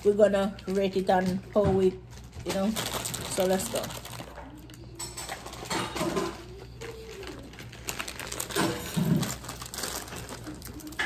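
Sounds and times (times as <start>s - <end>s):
snack packaging crinkling: 2.0s - 5.7s, 6.3s - 11.0s
crunchy snacks being chewed: 6.7s - 11.0s.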